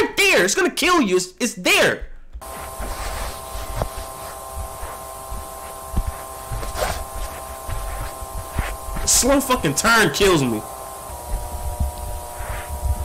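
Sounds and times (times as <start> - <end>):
soft low thumps: 2.1 - 9.6, 11.0 - 13.0
fluorescent lights buzzing: 2.4 - 13.0
tape hiss: 2.4 - 13.0.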